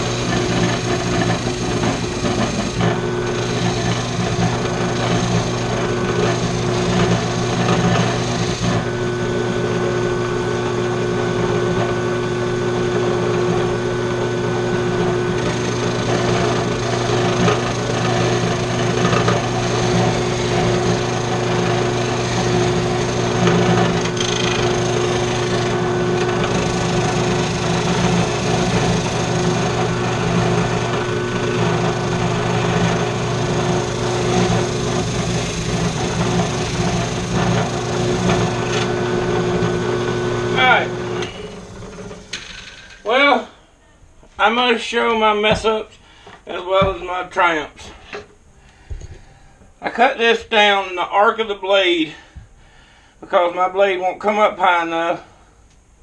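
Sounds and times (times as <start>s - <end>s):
rough rasping sanding: 0.0s - 8.9s, 15.3s - 39.8s
drill press motor hum: 0.0s - 43.1s.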